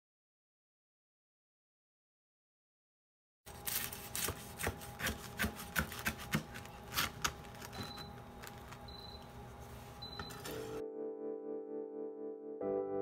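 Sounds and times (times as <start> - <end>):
knife cutting through toast crust: 3.5 - 8.0.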